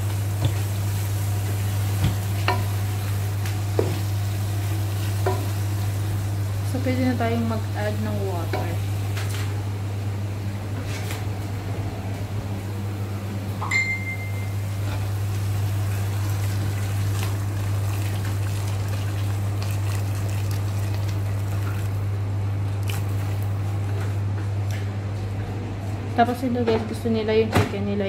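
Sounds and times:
steady low hum: 0.0s - 28.0s
click with high ringing tone: 13.6s - 14.6s
water pouring into pot: 15.7s - 22.0s.

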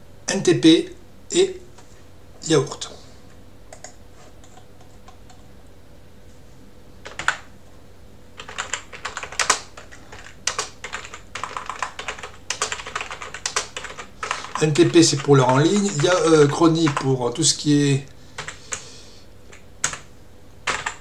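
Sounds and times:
keyboard typing: 7.0s - 7.5s, 8.4s - 17.1s, 18.4s - 18.8s, 19.5s - 21.0s.

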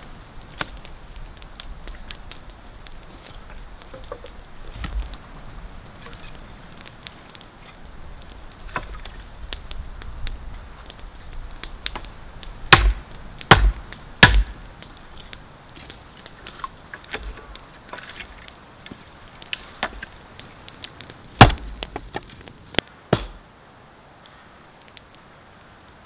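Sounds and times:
small clicks and scrapes: 5.9s - 12.1s, 14.8s - 21.2s
knife chopping wood: 12.7s - 14.6s, 21.4s - 22.2s, 23.1s - 23.4s.

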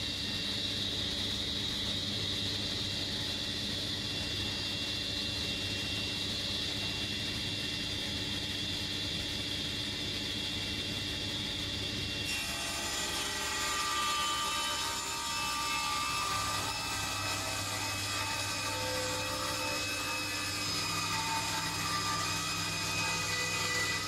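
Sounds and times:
table saw whining: 11.4s - 24.0s.

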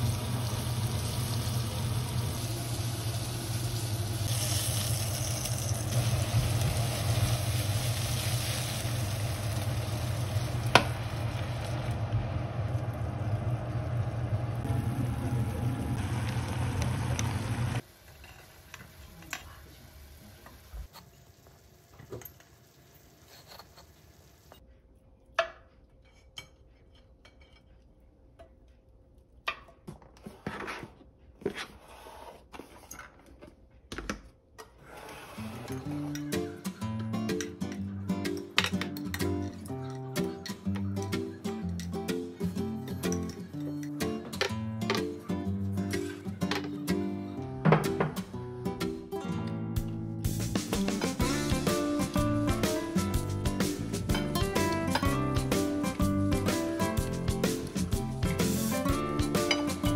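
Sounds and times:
food sizzling in a frying pan: 0.0s - 24.5s.

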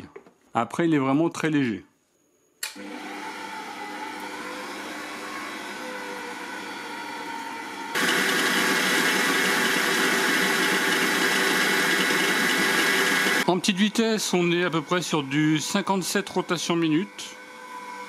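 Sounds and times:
stand mixer motor running: 8.0s - 13.5s.

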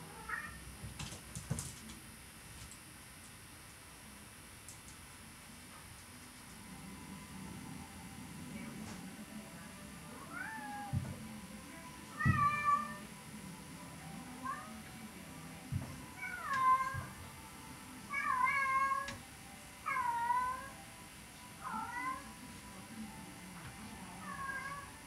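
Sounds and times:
cats meowing: 10.2s - 11.0s, 12.1s - 13.1s, 16.2s - 17.2s, 18.1s - 19.2s, 19.9s - 20.8s, 21.6s - 22.3s, 24.2s - 25.0s.

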